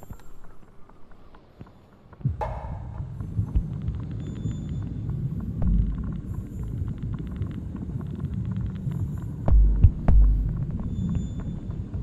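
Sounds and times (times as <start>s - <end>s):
faint crackling clicks: 0.0s - 2.2s, 3.2s - 10.1s
heavy low throb: 2.2s - 4.1s
low rumble: 2.2s - 12.0s.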